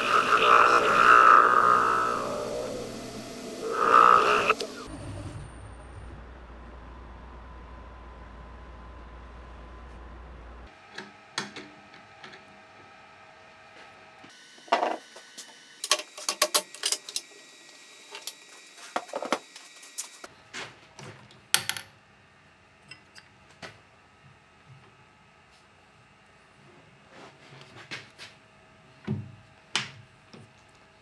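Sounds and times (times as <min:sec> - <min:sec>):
faint steady hum: 0:00.0 - 0:20.5.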